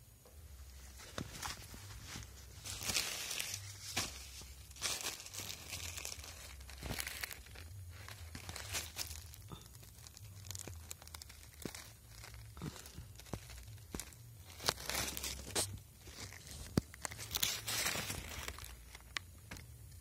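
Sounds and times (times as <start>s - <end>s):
rustling of leaves and plastic: 0.6s - 19.6s.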